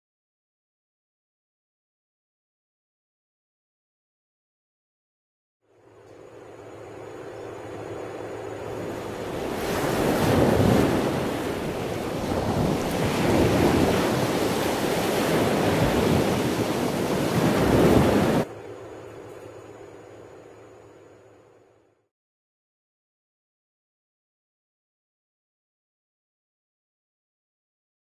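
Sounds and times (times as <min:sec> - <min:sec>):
sea surf rushing: 0:08.6 - 0:18.5.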